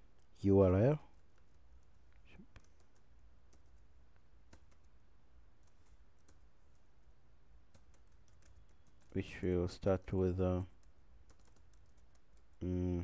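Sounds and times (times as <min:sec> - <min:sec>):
computer keys typing: 0:01.1 - 0:03.9, 0:04.5 - 0:05.0, 0:05.6 - 0:07.1, 0:07.7 - 0:12.7.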